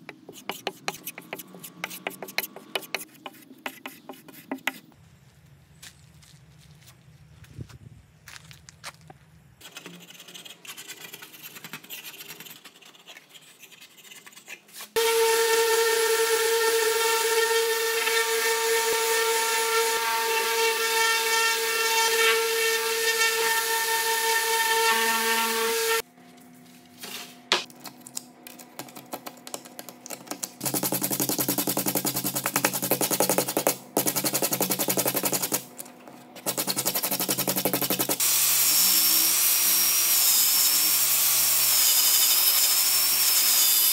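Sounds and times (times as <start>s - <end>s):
rotary tool high whine: 15.0s - 26.0s, 36.4s - 43.9s.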